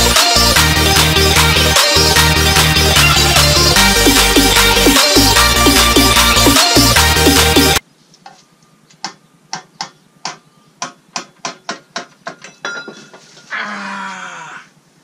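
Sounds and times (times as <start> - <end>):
electronic music: 0.0 - 7.8.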